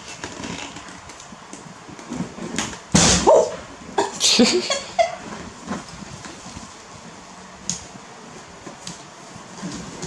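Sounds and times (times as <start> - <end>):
monkey yelping: 3.2 - 3.6.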